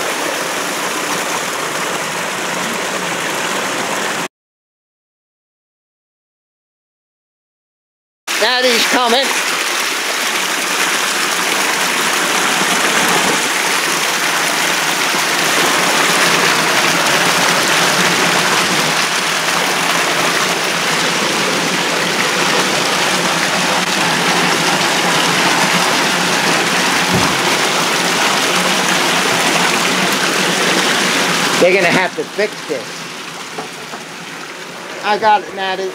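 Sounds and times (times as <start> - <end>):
water rushing through pipe: 0.0 - 4.3, 8.3 - 35.9
dull thump: 27.1 - 27.6.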